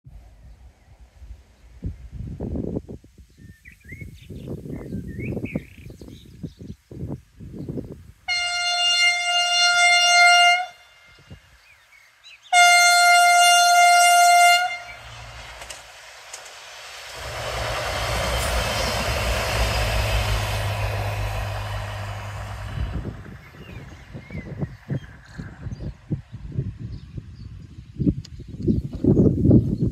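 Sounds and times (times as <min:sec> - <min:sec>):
train engine hum: 0:07.0 - 0:28.4
train horn blasts: 0:08.3 - 0:11.6, 0:12.5 - 0:15.4
train wheel noise: 0:13.6 - 0:26.1.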